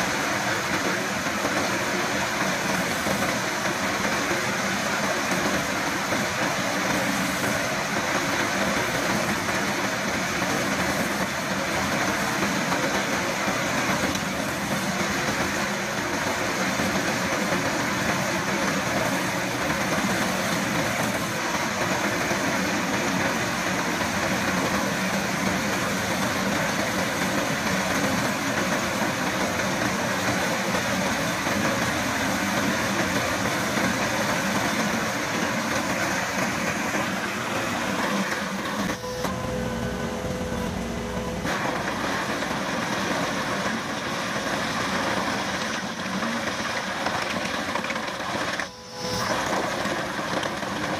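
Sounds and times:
diesel engine under load: 20.6s - 50.9s.

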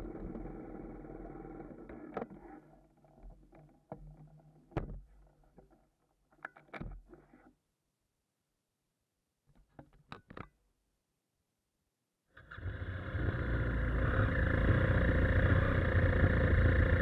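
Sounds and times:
motorcycle engine idling: 12.9s - 17.0s.

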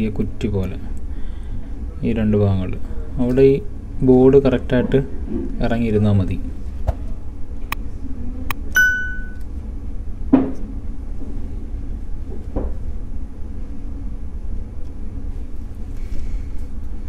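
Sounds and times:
steady low hum: 0.0s - 17.0s
click and bell-like ding: 8.7s - 9.4s.

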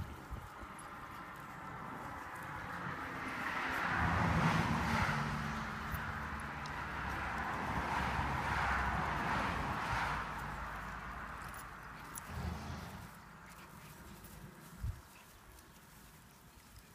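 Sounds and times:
another vehicle approaching: 0.1s - 16.9s
car driving past: 2.9s - 13.3s.

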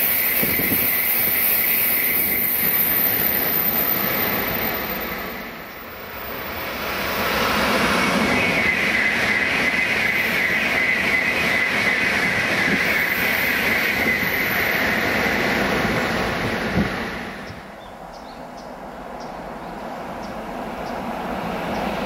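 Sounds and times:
high-speed train passing: 0.0s - 22.0s.

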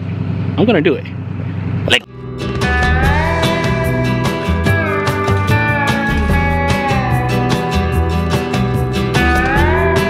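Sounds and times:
guitar with gliding notes: 2.0s - 10.0s
steady beat: 2.0s - 10.0s.

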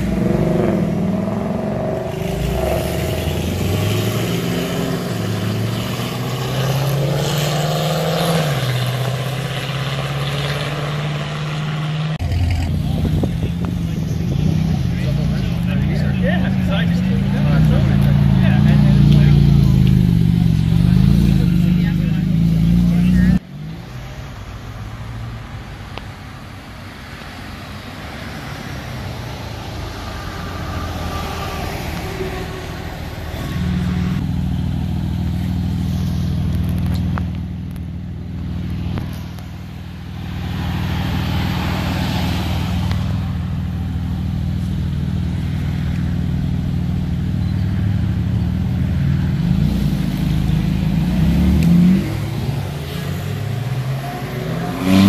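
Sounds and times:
engine revving and accelerating: 0.0s - 23.9s, 44.6s - 55.0s
cars driving off: 0.0s - 55.0s.

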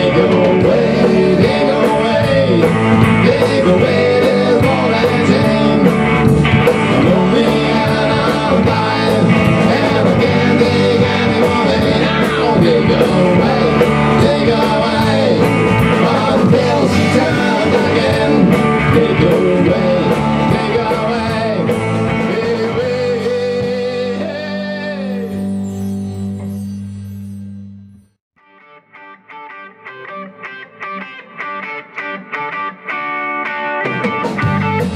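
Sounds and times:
rock band playing live: 0.0s - 26.6s, 28.5s - 34.9s
drum kit with cymbals: 0.0s - 26.9s, 33.8s - 34.9s
electric guitars: 0.0s - 27.6s, 28.4s - 34.9s.

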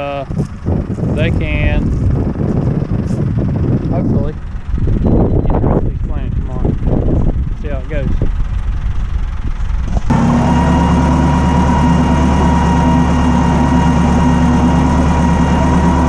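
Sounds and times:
wind buffeting microphone: 0.0s - 10.2s
tractor engine running: 0.0s - 16.0s.

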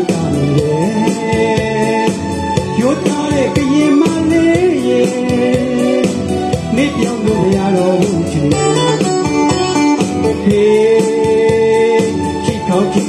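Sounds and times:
electronic keyboard: 0.0s - 13.0s
man singing into a microphone: 0.0s - 13.0s
drum machine beat: 2.9s - 11.7s.

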